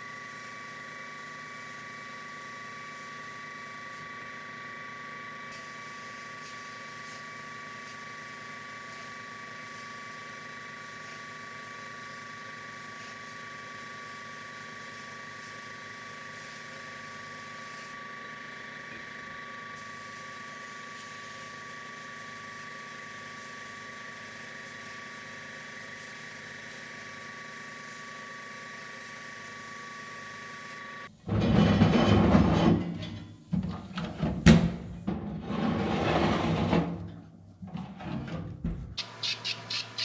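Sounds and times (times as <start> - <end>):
sandblasting gun hissing: 0.0 - 4.1, 5.5 - 18.0, 19.7 - 31.1.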